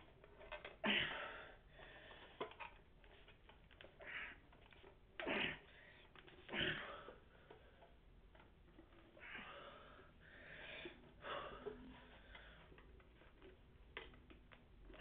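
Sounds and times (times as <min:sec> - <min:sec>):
man breathing hard: 0:09.2 - 0:12.8.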